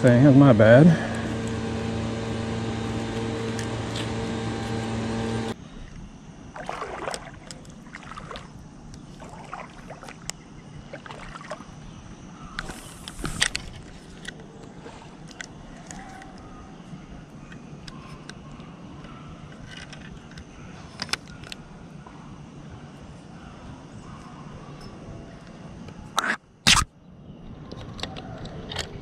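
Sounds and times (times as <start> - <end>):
steady hum with low tones: 0.0 - 27.4
fishing reel clicks and rustles: 19.4 - 21.7.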